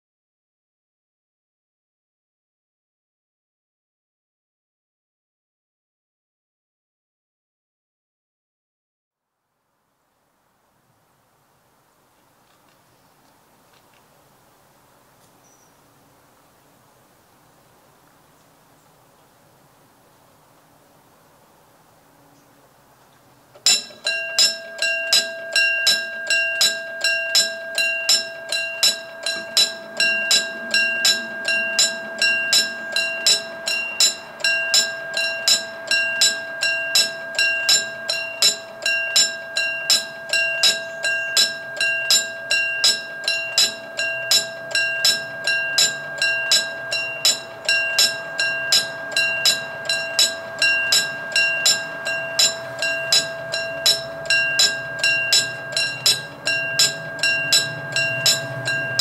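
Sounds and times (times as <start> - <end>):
railroad crossing bell ringing: 23.5 - 59.0.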